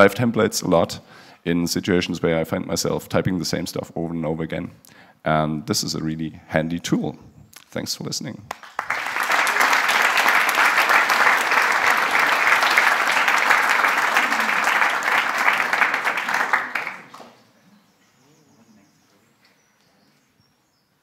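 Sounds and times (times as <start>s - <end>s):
audience applauding: 8.5s - 17.4s.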